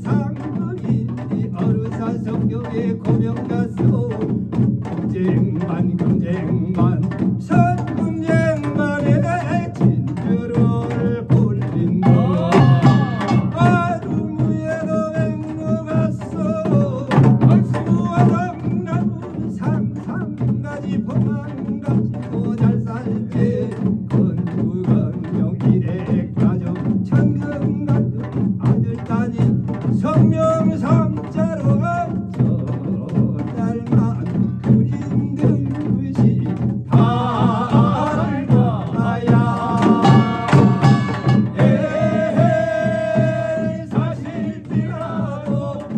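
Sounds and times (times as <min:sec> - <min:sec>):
barrel drums beating: 0:00.0 - 0:45.9
man chanting a melody: 0:00.0 - 0:45.9
hourglass drum: 0:11.9 - 0:14.0, 0:37.2 - 0:44.0.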